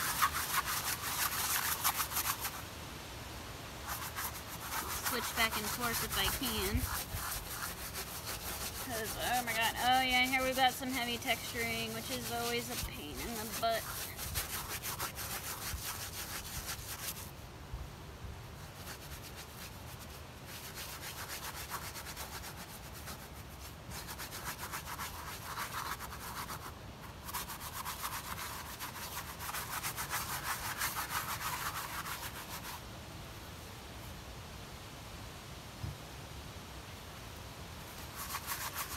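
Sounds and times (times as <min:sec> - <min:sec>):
brush scrubbing textured surface: 0:00.0 - 0:02.6, 0:03.8 - 0:17.3, 0:18.6 - 0:32.8, 0:37.9 - 0:38.9.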